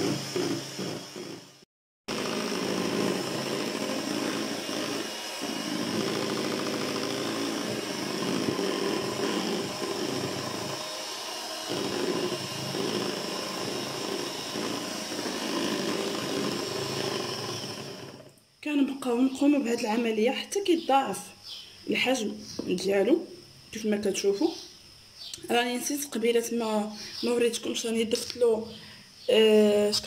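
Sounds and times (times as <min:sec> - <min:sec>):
electric hand mixer whipping cream: 0:00.0 - 0:18.3.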